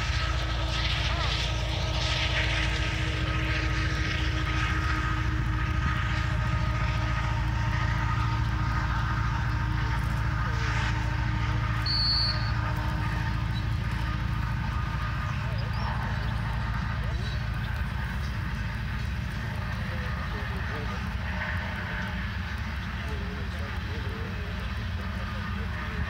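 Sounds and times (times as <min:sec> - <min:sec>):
freight train rumbling past: 0:00.0 - 0:26.0
short high-pitched whistle: 0:11.8 - 0:12.5.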